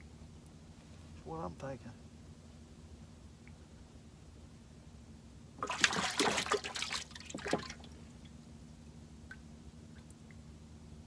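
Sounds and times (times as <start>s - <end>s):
water splashing: 5.6s - 8.1s.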